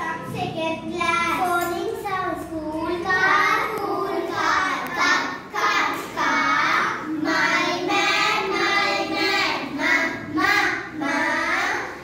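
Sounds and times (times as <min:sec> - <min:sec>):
girls singing together: 0:02.7 - 0:12.0.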